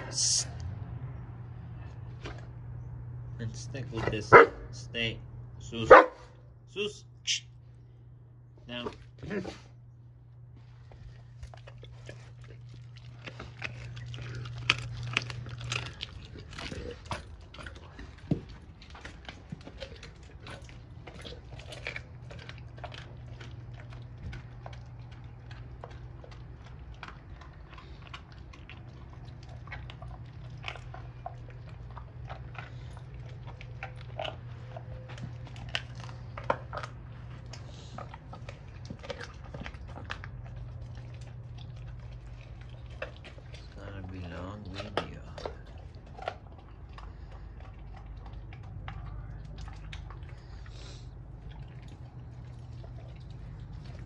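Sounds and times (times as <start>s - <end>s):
dog chewing wetly: 0.0s - 6.5s, 7.5s - 54.0s
steady low hum: 0.0s - 54.0s
teeth cracking bone: 10.8s - 54.0s.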